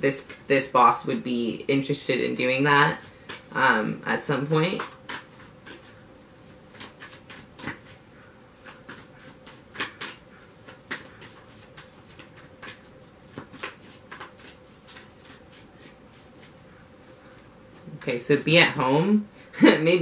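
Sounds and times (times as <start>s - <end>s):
cards being shuffled: 4.7s - 6.0s, 6.6s - 8.0s, 8.6s - 16.6s.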